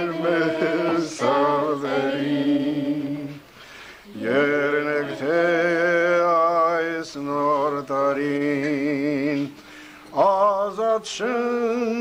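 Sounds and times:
man breathing: 3.5s - 4.1s, 9.6s - 10.1s
man singing unaccompanied: 4.2s - 9.6s, 10.2s - 12.0s.

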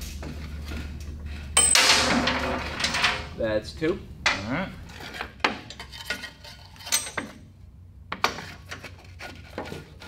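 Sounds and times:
wood scraping and knocking on metal: 0.2s - 3.3s, 4.3s - 7.4s.

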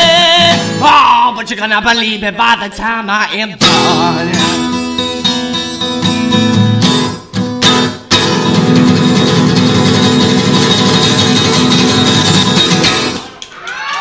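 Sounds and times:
acoustic guitar strumming: 0.0s - 1.3s, 3.6s - 13.4s.

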